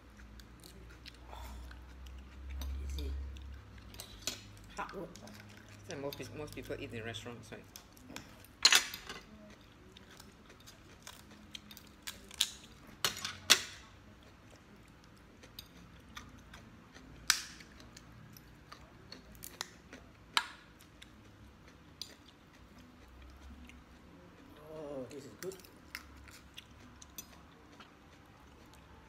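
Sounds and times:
lobster shell snapping and cracking: 12.0s - 13.9s, 17.2s - 17.9s, 19.1s - 20.7s.

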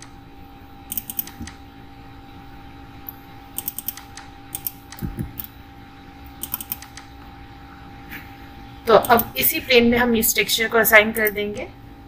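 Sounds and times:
steady faint hum: 0.0s - 12.0s
mouse and keyboard clicking: 0.9s - 1.6s, 3.6s - 5.5s, 6.4s - 7.1s.

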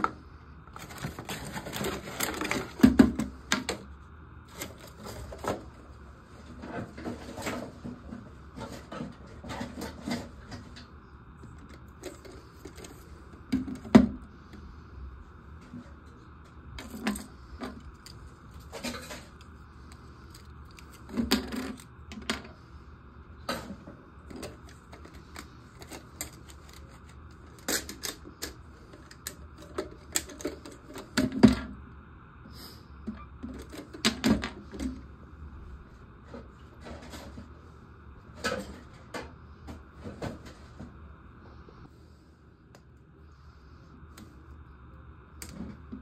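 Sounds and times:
plastic parts clicking and knocking: 0.0s - 3.9s, 6.8s - 14.3s, 20.3s - 22.6s, 23.5s - 31.8s, 33.1s - 35.0s.

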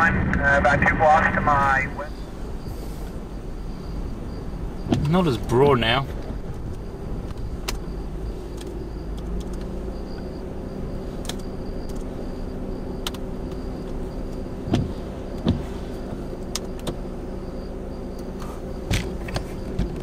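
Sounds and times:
vehicle engine idling: 0.0s - 20.0s
short thumps: 4.8s - 5.2s, 14.6s - 15.8s
sharp clicks: 6.7s - 7.9s, 8.6s - 9.7s, 13.0s - 14.0s.

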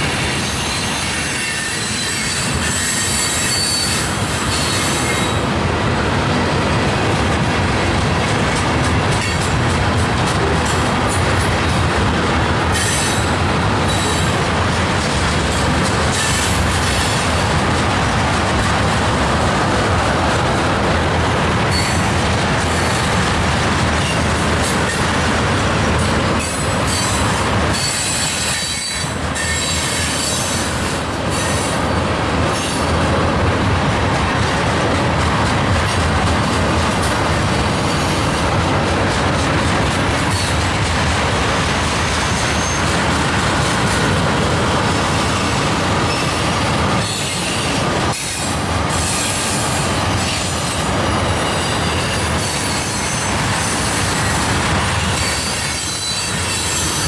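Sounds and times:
train wheels rumbling on rails: 0.0s - 57.0s
wheel squeal: 0.4s - 5.4s, 55.0s - 57.0s.

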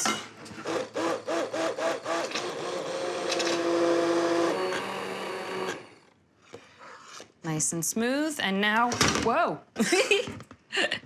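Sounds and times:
immersion blender running: 0.6s - 6.1s.

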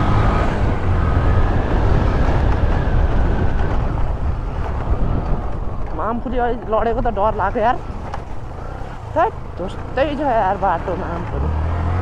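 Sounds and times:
motorcycle engine rumbling: 0.0s - 12.0s
wind buffeting microphone: 0.0s - 12.0s.

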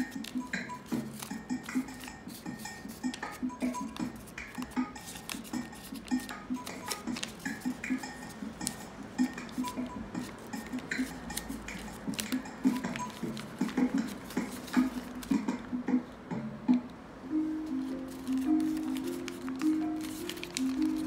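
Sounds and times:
background music with plucked notes: 0.0s - 21.0s
paper bag crinkling: 18.1s - 21.0s.

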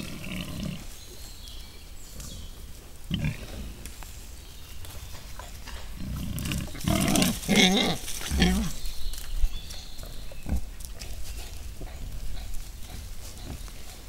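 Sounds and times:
wild boars grunting: 0.0s - 1.2s, 2.2s - 3.9s, 5.0s - 9.0s, 10.1s - 14.0s.

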